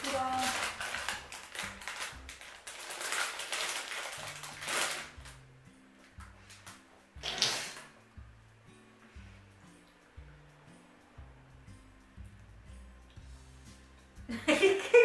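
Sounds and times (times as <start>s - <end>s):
plastic bag crinkling: 0.0s - 5.4s
quiet background music: 0.0s - 15.0s.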